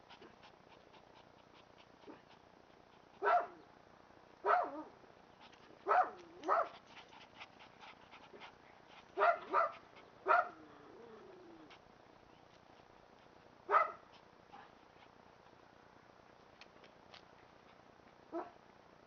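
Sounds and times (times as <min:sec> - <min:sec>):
puppy whining: 0:10.4 - 0:11.8.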